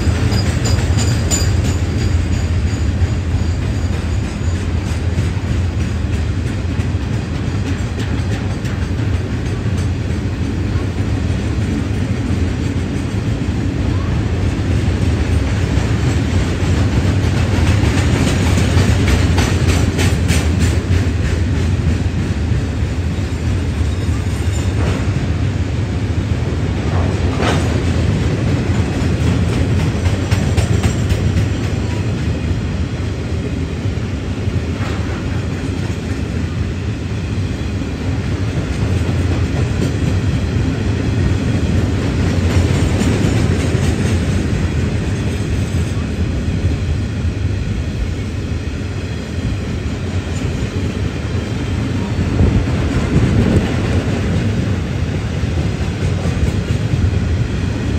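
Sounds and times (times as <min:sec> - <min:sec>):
wheels clicking over rail joints: 0:00.0 - 0:10.9
freight train rumbling: 0:00.0 - 0:57.9.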